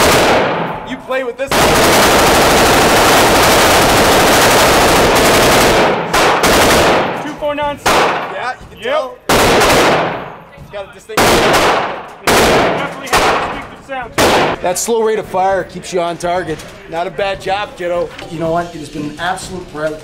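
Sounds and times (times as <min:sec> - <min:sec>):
submachine gun firing with echo: 0:00.0 - 0:00.8, 0:01.5 - 0:08.3, 0:09.3 - 0:10.4, 0:11.2 - 0:13.6, 0:14.2 - 0:14.6.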